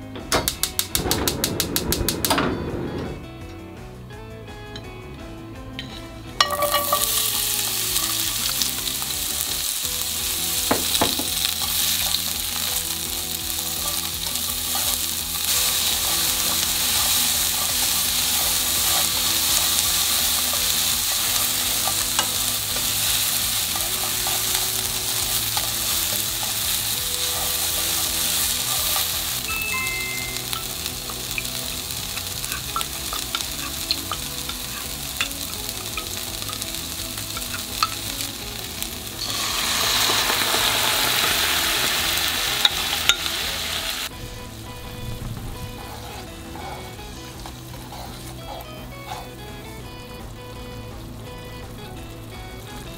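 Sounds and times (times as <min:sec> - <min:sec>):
wooden utensil stirring in pan: 0:06.4 - 0:43.4, 0:45.8 - 0:49.3
onions sizzling in hot oil: 0:06.4 - 0:52.9.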